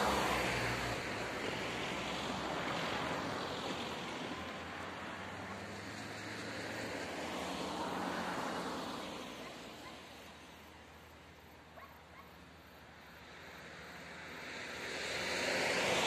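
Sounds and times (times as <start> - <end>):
car driving away: 0.0 - 9.3.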